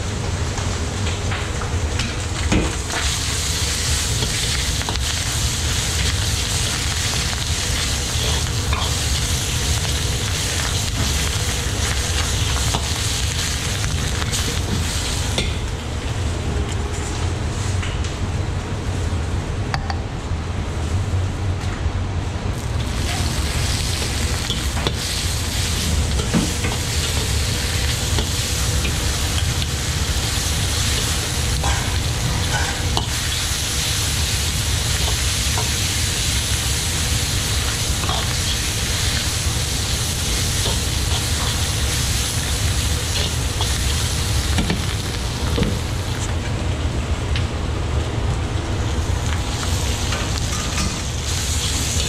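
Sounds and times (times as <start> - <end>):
meat sizzling in hot oil: 2.3 - 15.8, 22.6 - 46.3, 49.1 - 52.0.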